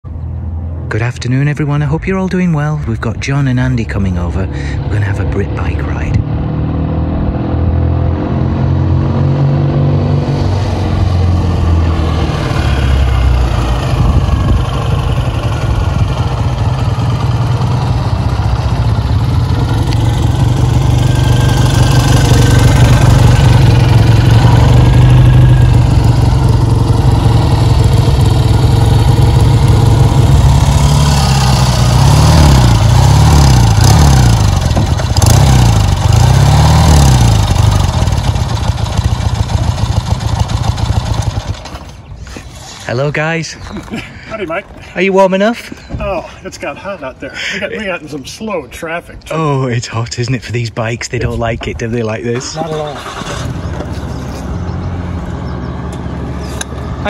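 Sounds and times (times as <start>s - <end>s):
motorcycles riding slowly: 1.8s - 6.5s, 10.4s - 57.0s
motorcycle engines revving: 4.5s - 42.9s, 51.2s - 57.0s.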